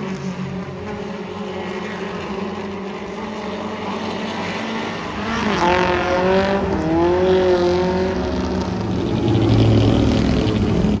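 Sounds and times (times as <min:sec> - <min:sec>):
race car engines passing: 0:00.0 - 0:11.0
deep loud engine rumble: 0:05.6 - 0:11.0.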